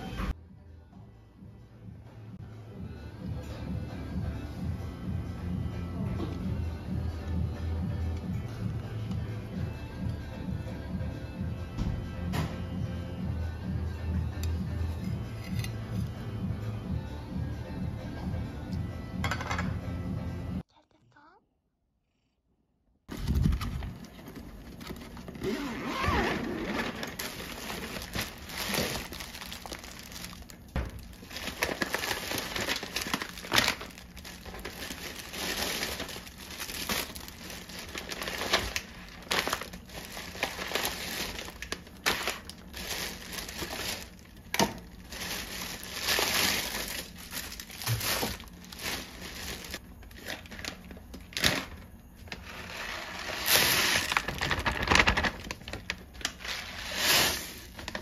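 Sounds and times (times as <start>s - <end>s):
plastic bags crinkling: 23.1s - 58.0s.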